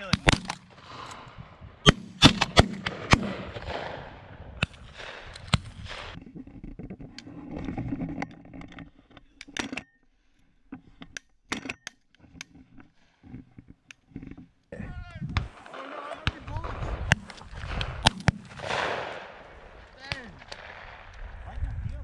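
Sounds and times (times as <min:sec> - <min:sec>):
shotgun shots: 0:00.0 - 0:01.1, 0:01.8 - 0:06.2, 0:15.4 - 0:21.1
gun cycling and ejecting hull: 0:09.4 - 0:10.0, 0:11.0 - 0:12.6.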